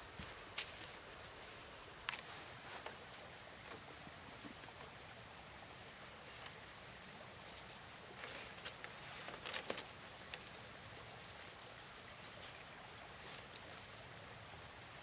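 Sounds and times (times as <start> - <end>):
faint steady hiss: 0.0 - 15.0
bamboo strips clicking and rattling: 8.1 - 11.6.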